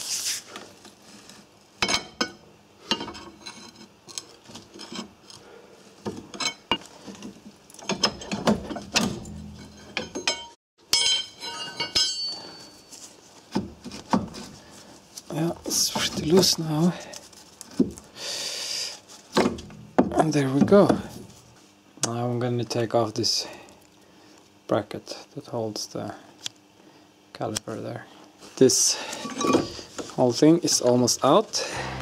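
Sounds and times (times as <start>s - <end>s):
metal clinks and knocks: 7.8s - 13.1s.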